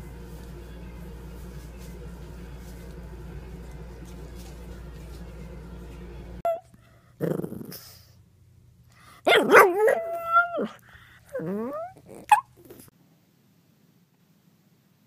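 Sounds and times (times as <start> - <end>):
puppy yip: 6.4 - 6.7, 11.7 - 12.5
puppy yelping: 9.3 - 12.9.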